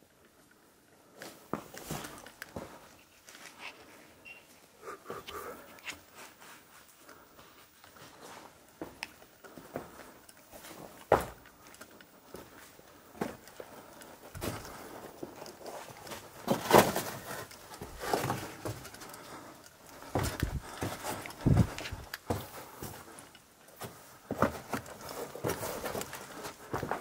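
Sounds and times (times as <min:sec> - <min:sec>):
footsteps and scuffs: 0:01.2 - 0:03.9, 0:05.2 - 0:23.2.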